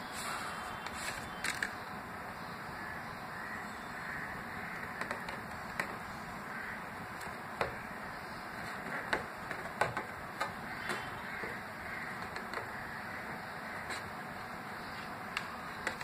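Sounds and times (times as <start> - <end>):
steady hiss: 0.0 - 4.6.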